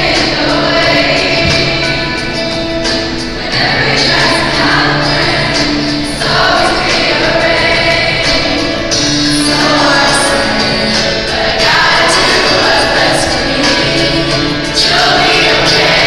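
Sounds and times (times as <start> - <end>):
choir singing long notes: 0.0 - 16.0.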